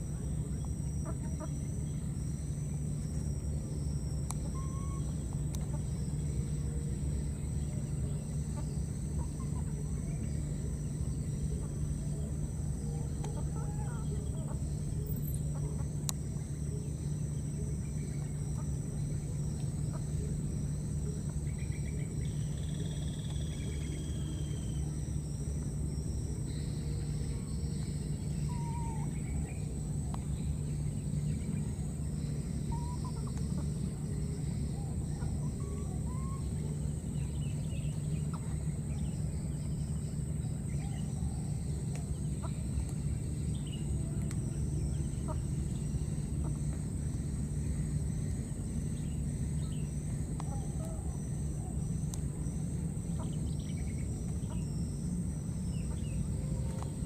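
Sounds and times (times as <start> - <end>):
high-pitched whine: 0.0 - 57.0
steady low hum: 0.0 - 57.0
bird calls: 4.3 - 16.0, 26.4 - 46.8.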